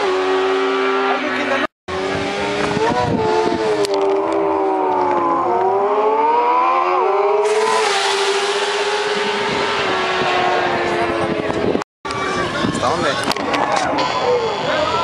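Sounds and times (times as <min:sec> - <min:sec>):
motorcycle engines revving: 0:00.0 - 0:12.5.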